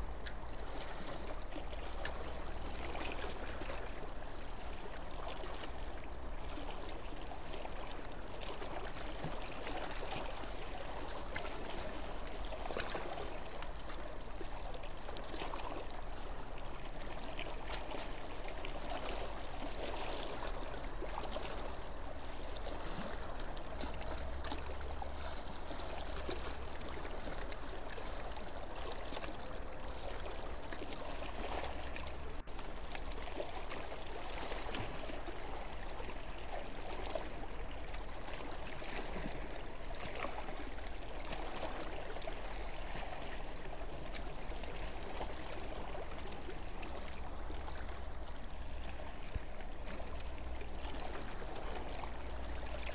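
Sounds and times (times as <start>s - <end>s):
water splashing at quay edge: 0.0s - 52.9s.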